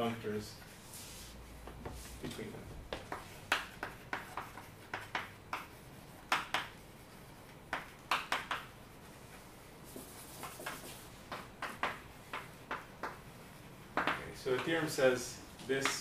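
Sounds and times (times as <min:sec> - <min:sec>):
chalk scratching on blackboard: 0:00.6 - 0:14.7
chalk wiped off by hand: 0:00.7 - 0:02.2.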